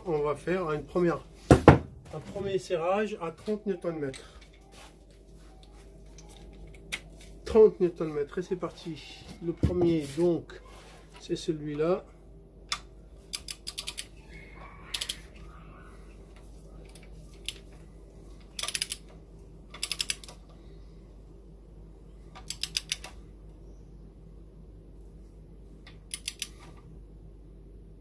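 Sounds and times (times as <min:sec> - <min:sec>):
torque wrench ratchet clicking: 0:18.6 - 0:19.0, 0:19.8 - 0:20.3, 0:22.4 - 0:23.1, 0:26.1 - 0:26.5.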